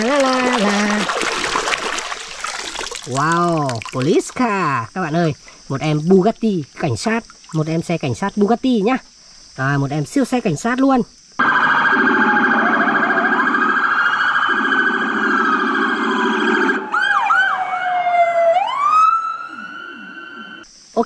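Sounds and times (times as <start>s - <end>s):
police sirens: 11.4s - 20.6s.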